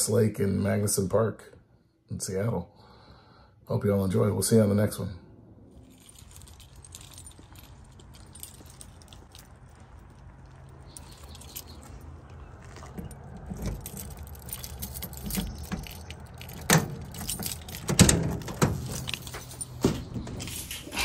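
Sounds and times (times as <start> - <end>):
keys jangling: 5.8 - 21.0.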